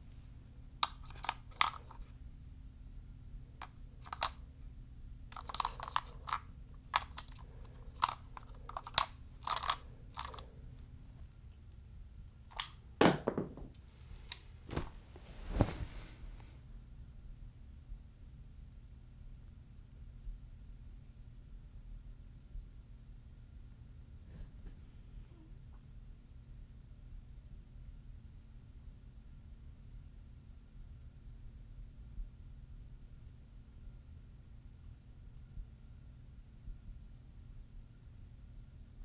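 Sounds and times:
batteries clicking into a controller: 0.8 - 2.1, 3.6 - 4.4, 5.3 - 10.5.

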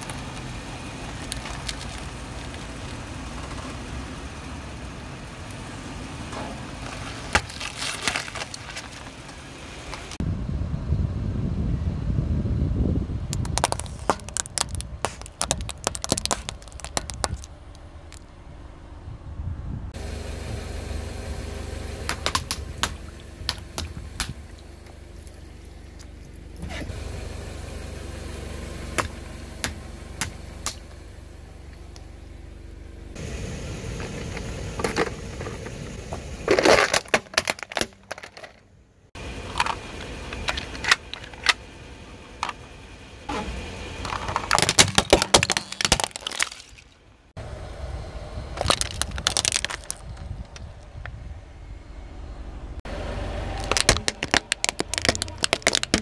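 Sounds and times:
objects cracking under car tyre: 0.0 - 3.8, 6.3 - 10.2, 13.3 - 18.4, 22.0 - 27.0, 34.0 - 38.7, 44.0 - 47.2, 48.6 - 50.9, 53.4 - 56.0
car engine running: 0.0 - 56.0.

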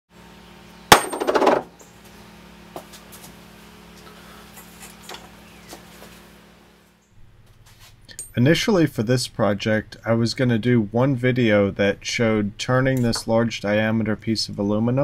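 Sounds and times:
steady low hum: 0.1 - 15.0
metal disc knocking on wooden bench: 0.9 - 1.7
metal disc rattling: 0.9 - 1.7.

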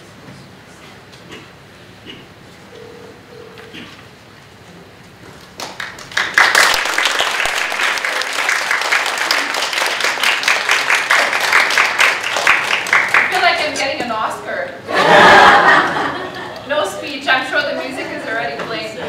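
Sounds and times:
audience applauding: 5.4 - 13.8.

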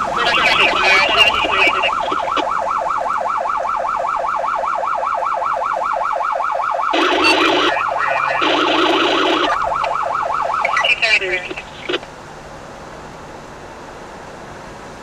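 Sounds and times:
emergency siren yelping: 0.0 - 12.0.

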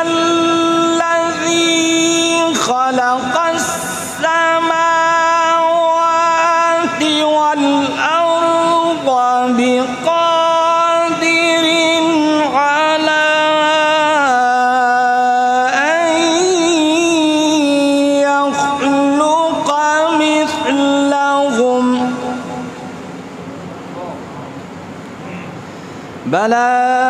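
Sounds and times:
man reciting melodically: 0.0 - 23.2, 26.2 - 27.0.

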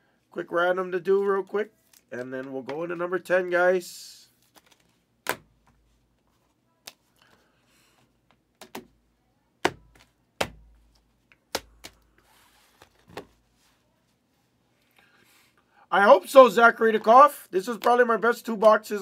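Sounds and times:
plastic card holders tapping: 8.6 - 9.0, 9.6 - 12.0.

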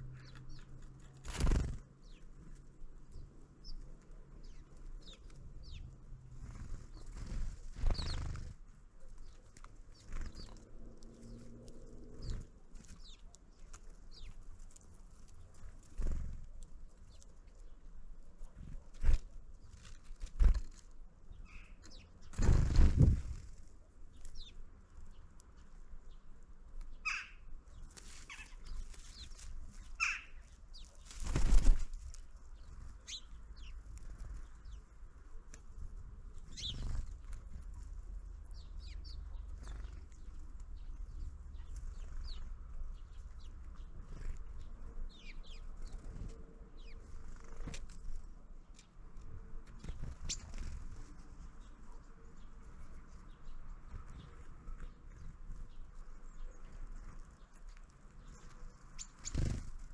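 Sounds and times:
high bird chirps and clicks: 0.1 - 2.3, 3.0 - 5.9, 7.9 - 8.4, 9.0 - 17.8, 19.8 - 22.5, 24.1 - 31.1, 36.4 - 37.5, 54.0 - 59.6
bird wings flapping: 1.0 - 1.9, 6.3 - 8.6, 18.9 - 20.9, 22.3 - 23.7, 31.0 - 32.2, 59.2 - 59.9.

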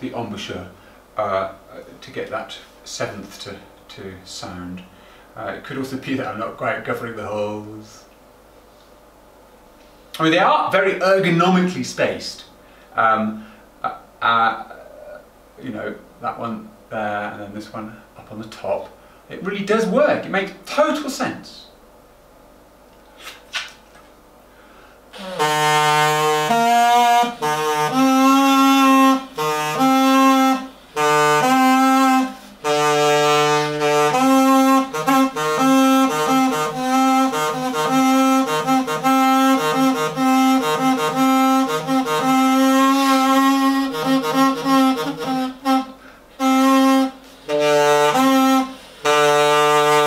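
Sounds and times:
buzzy reed pipe notes: 13.0 - 17.8, 25.1 - 50.0.

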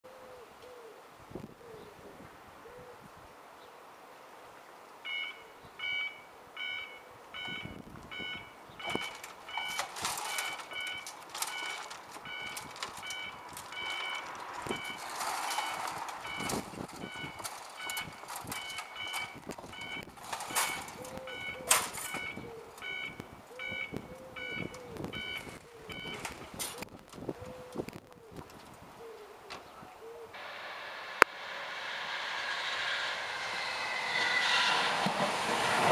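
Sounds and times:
pigeon cooing: 0.1 - 3.1, 20.6 - 30.4
level crossing alarm beeping: 5.0 - 26.4
sharp clicks and knocks: 8.8 - 23.3.

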